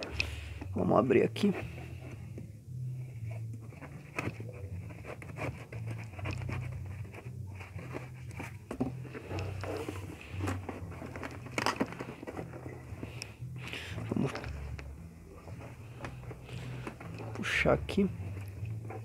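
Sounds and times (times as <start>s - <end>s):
cardboard rustling and crinkling: 3.6s - 13.2s.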